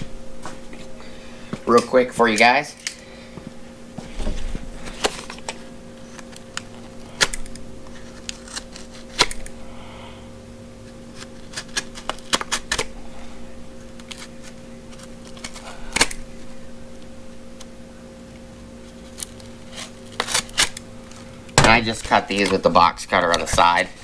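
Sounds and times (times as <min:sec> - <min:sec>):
plastic packaging clicks and crinkles: 0:18.9 - 0:24.0.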